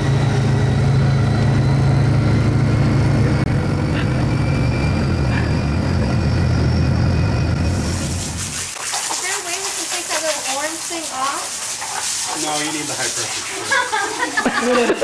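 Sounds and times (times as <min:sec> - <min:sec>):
engine running steadily: 0:00.0 - 0:08.5.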